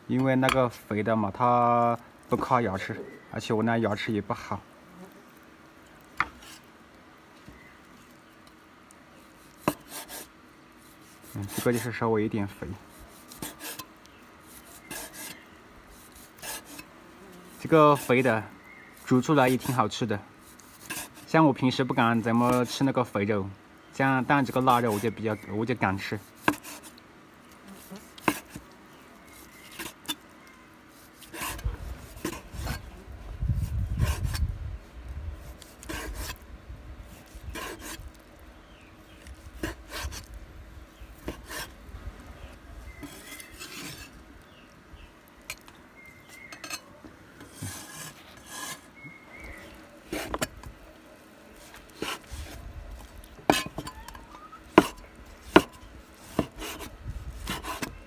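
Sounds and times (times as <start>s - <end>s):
cleaver slicing meat: 12.9s - 16.9s, 24.3s - 27.0s, 27.8s - 30.2s, 30.9s - 32.9s, 35.4s - 36.4s, 37.1s - 38.2s, 39.2s - 40.4s, 51.6s - 53.9s, 54.7s - 58.0s.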